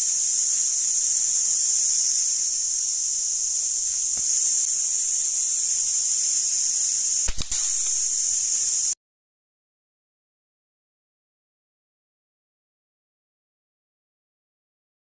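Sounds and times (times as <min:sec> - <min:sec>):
high-pitched insect chorus: 0:00.0 - 0:09.0.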